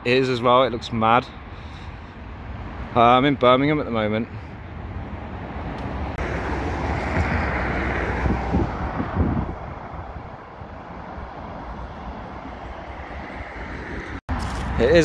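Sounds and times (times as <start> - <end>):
traffic hum: 0.0 - 15.0
vehicle passing: 4.2 - 14.6.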